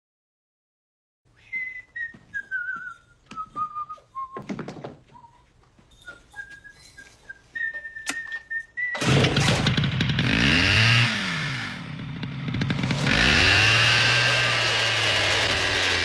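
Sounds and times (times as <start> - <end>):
person whistling a tune: 1.4 - 4.5, 6.0 - 9.0
chainsaw running loudly: 9.0 - 16.0.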